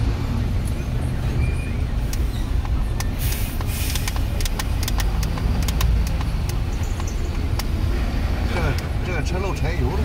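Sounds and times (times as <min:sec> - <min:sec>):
low rumble of vehicle engines: 0:00.0 - 0:10.0
small clicks: 0:02.1 - 0:07.7.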